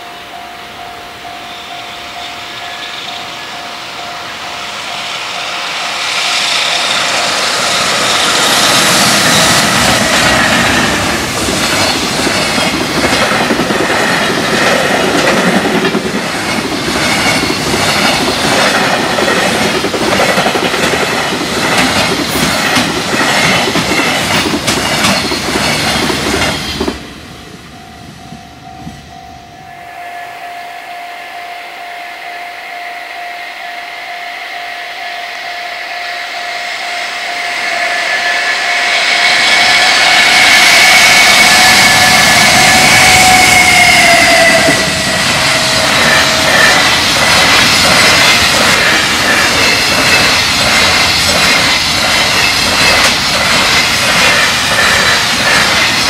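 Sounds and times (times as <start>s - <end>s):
train wheels clattering: 4.5s - 29.2s, 37.3s - 56.0s.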